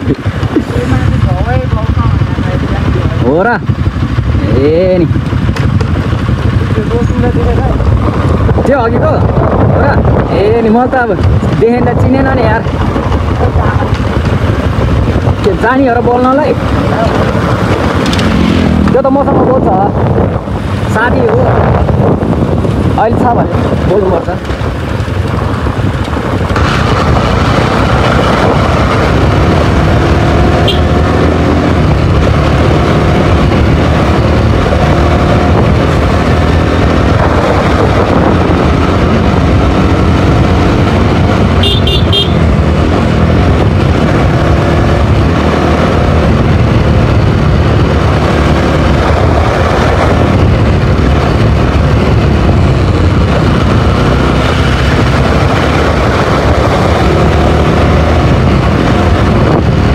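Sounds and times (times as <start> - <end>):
motorcycle engine rumbling: 0.0 - 59.9
wind: 0.0 - 59.9
motorcycle horn toots: 30.6 - 31.1, 41.5 - 42.5.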